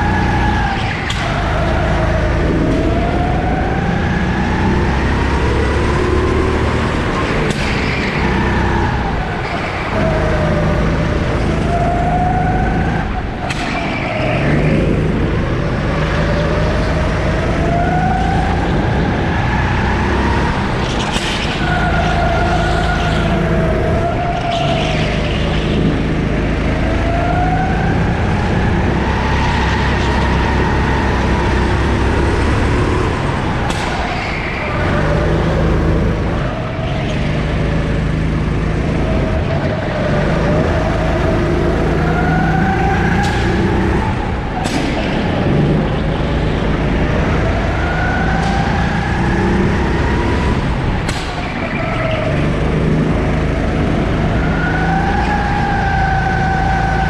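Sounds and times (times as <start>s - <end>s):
go-kart engine accelerating: 0.0s - 57.0s.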